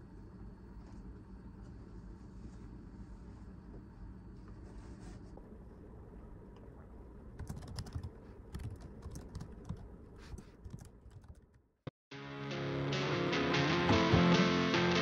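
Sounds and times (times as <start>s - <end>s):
keyboard typing: 7.4s - 11.6s
strummed guitar: 12.2s - 15.0s.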